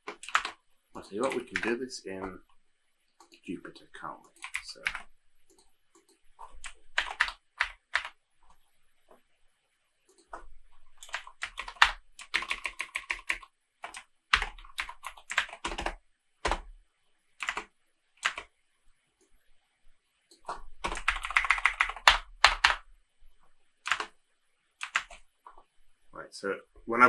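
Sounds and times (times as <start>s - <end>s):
typing on computer keyboard: 0.0s - 0.6s, 1.2s - 1.8s, 4.3s - 8.2s, 10.1s - 16.7s, 17.4s - 18.5s, 20.3s - 22.8s, 23.8s - 24.1s, 24.8s - 25.6s.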